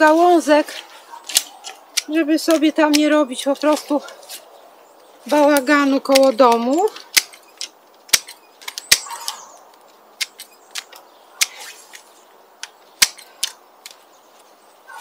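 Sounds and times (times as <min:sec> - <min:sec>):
twigs snapping: 0:00.0 - 0:04.6, 0:05.2 - 0:15.0
twigs rustling: 0:00.0 - 0:15.0.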